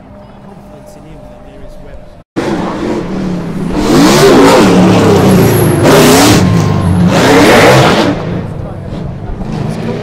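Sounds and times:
racing engine revving hard: 0:02.4 - 0:10.0.

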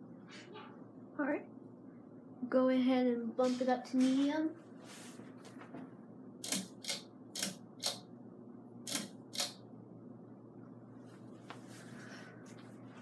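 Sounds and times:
ceiling fan motor hum: 0:00.0 - 0:13.0
sharp clicks: 0:06.4 - 0:08.0, 0:08.9 - 0:09.6.

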